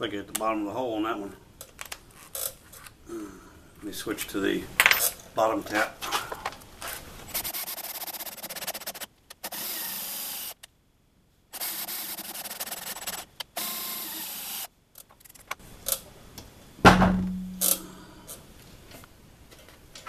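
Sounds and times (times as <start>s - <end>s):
loud ringing knock: 16.8s - 17.7s.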